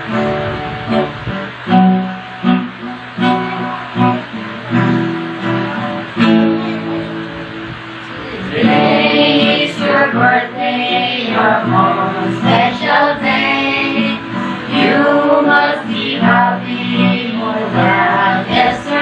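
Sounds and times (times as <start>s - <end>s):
acoustic guitar strumming: 0.0s - 19.0s
group of voices singing: 8.1s - 19.0s.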